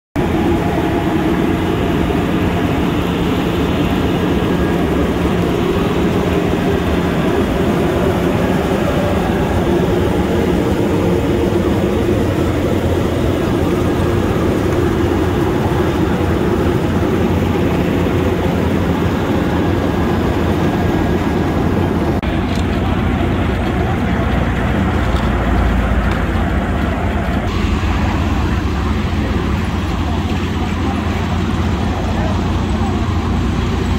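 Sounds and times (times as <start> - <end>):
diesel paver drone: 0.2 - 33.9.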